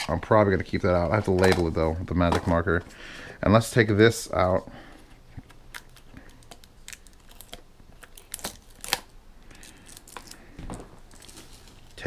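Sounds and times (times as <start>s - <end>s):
cardboard packaging rustling: 9.9s - 12.0s.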